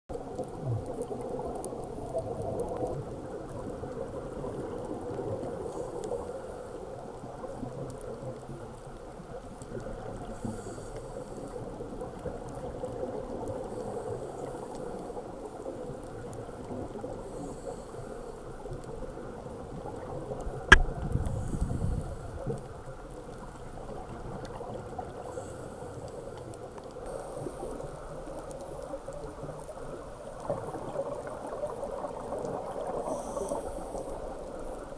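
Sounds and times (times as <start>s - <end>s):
bubbles gurgling and hissing: 0.1s - 34.9s
diver breathing underwater: 21.2s - 22.5s, 33.0s - 34.4s.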